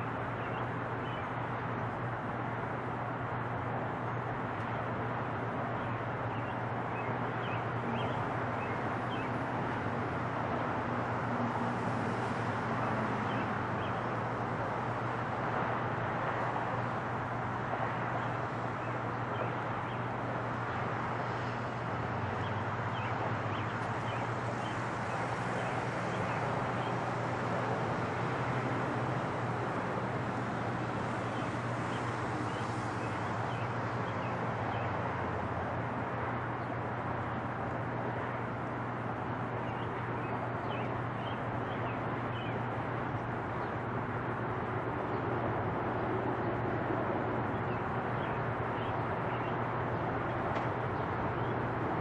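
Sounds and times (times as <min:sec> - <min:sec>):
small birds chirping: 0:05.8 - 0:09.4, 0:13.3 - 0:14.0, 0:22.4 - 0:27.0, 0:39.6 - 0:42.7, 0:47.6 - 0:49.5.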